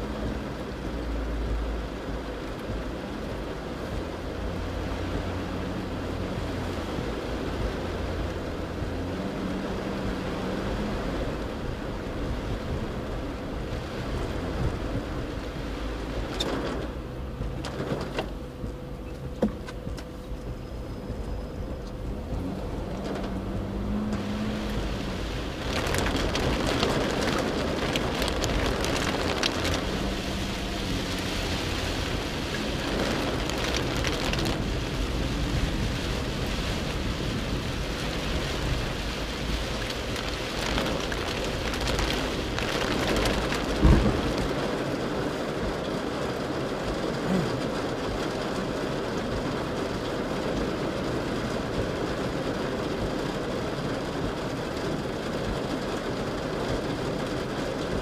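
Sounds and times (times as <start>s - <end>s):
rain on car windscreen: 0.0s - 58.0s
road and water noise: 0.0s - 58.0s
sharp thump: 43.8s - 44.2s.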